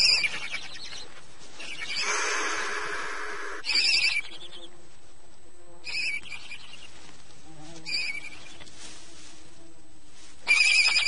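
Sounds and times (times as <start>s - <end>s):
owl chicks calling: 0.0s - 4.8s, 5.8s - 7.1s, 7.8s - 8.7s, 10.4s - 11.0s.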